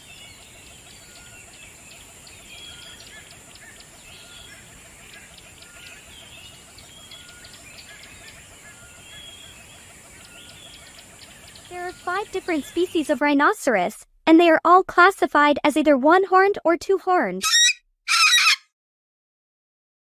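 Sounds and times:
birds chirping and whistling: 0:00.0 - 0:13.0, 0:17.4 - 0:18.6.

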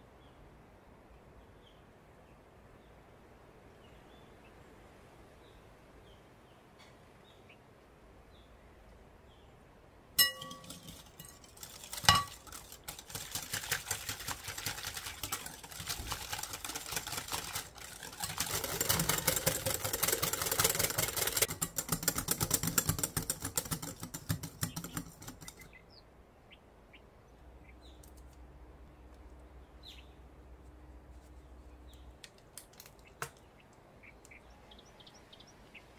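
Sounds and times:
glass bowl clink: 0:10.2 - 0:11.4, 0:12.0 - 0:12.4
whisk scraping a glass bowl: 0:10.2 - 0:25.6.

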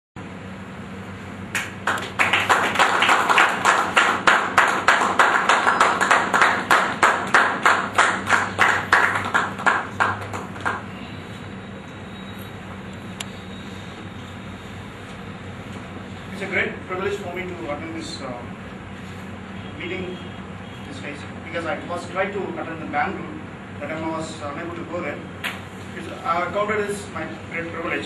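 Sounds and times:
people clapping in unison: 0:01.5 - 0:11.0.

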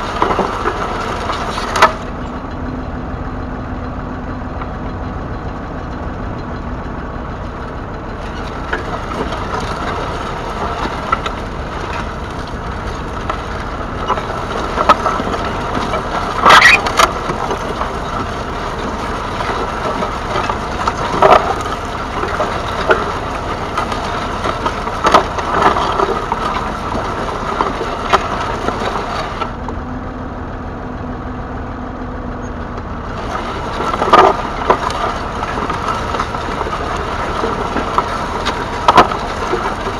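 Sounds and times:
sharp cracks and knocks: 0:00.0 - 0:02.3, 0:08.2 - 0:29.8, 0:32.8 - 0:39.9
tractor diesel engine running: 0:00.0 - 0:39.9.

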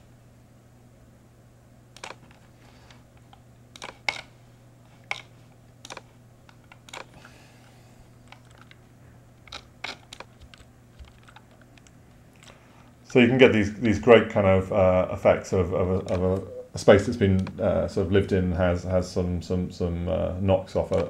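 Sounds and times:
faint low hum: 0:00.0 - 0:21.0
mouse and keyboard clicks: 0:02.0 - 0:02.4, 0:03.2 - 0:04.3, 0:05.0 - 0:07.2, 0:09.4 - 0:12.5.

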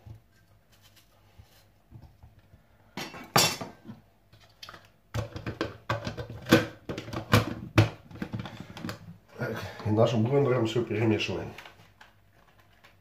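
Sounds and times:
plastic lid clattering: 0:05.2 - 0:09.1.

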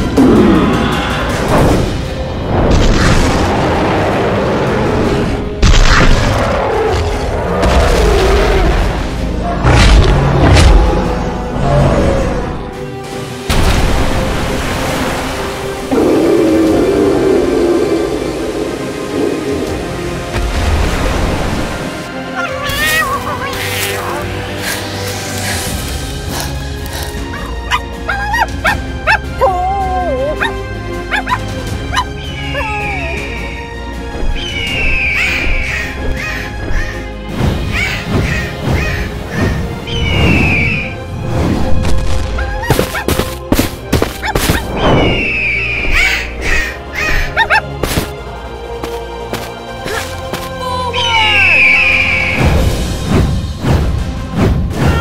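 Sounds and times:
background music: 0:00.0 - 0:55.0
wavering growl: 0:15.9 - 0:20.2
dog yipping and whimpering: 0:27.4 - 0:32.8, 0:46.0 - 0:47.7.

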